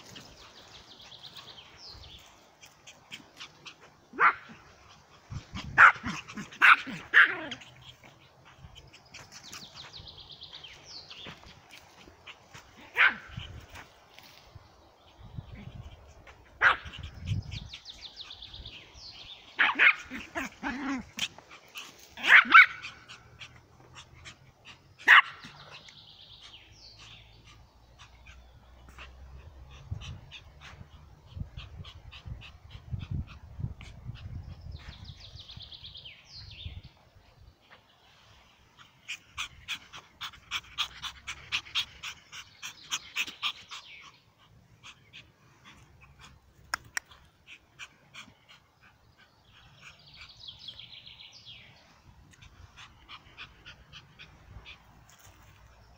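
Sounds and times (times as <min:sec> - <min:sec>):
small dog barking: 0:04.1 - 0:04.6, 0:05.6 - 0:07.7, 0:12.8 - 0:13.5, 0:16.6 - 0:17.1, 0:19.6 - 0:21.3, 0:22.2 - 0:23.5, 0:25.0 - 0:25.8.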